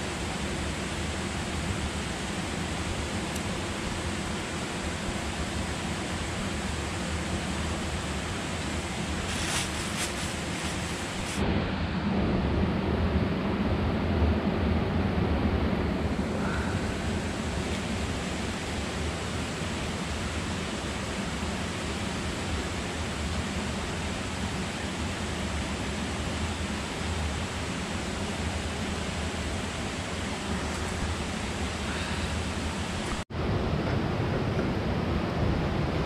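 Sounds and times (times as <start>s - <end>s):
river water rushing: 16.2s - 35.4s.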